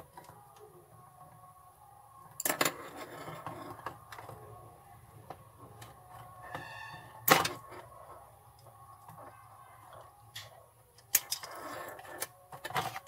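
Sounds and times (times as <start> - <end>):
brief squeak: 6.5 - 7.2.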